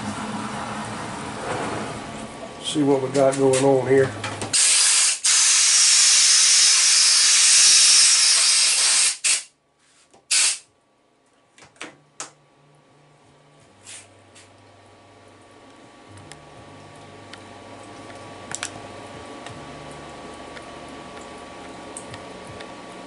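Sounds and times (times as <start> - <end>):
compressed-air blow gun hissing: 4.6 - 9.5, 10.3 - 10.6.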